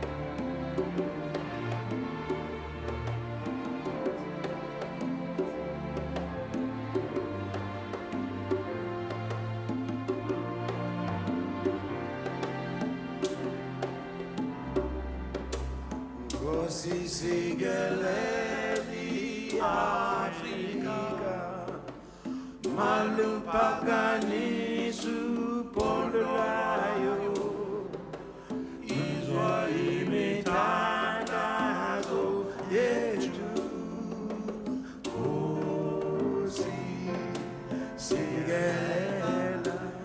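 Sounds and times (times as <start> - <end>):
symphony orchestra: 0.0 - 40.0
men singing: 16.3 - 40.0.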